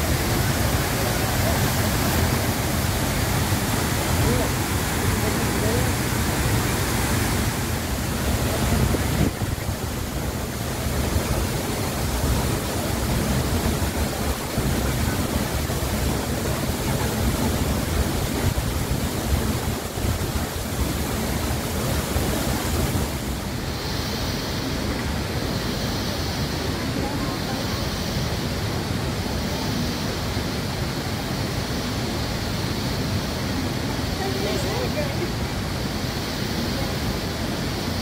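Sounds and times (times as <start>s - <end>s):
waterfall rushing: 0.0s - 38.0s.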